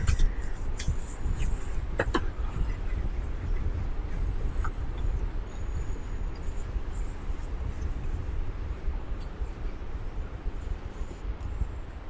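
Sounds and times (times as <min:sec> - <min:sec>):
marker squeaking on whiteboard: 0:00.0 - 0:11.2
low room rumble: 0:00.0 - 0:12.0.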